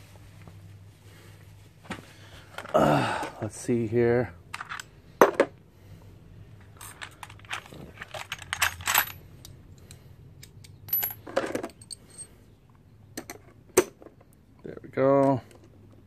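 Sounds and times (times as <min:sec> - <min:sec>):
metal tools clinking in toolbox: 0:06.6 - 0:09.3, 0:10.4 - 0:12.4.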